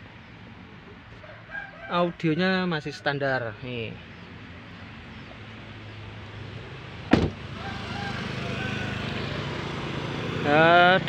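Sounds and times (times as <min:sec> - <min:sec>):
street hum: 0:00.0 - 0:11.0
car door shutting: 0:07.1 - 0:07.4.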